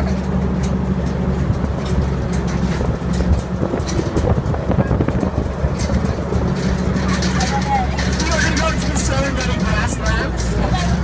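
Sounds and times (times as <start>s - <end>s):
truck engine and road rumble: 0.0s - 11.0s
vehicle rattles and clicks: 0.0s - 11.0s
wind on microphone: 2.8s - 6.4s.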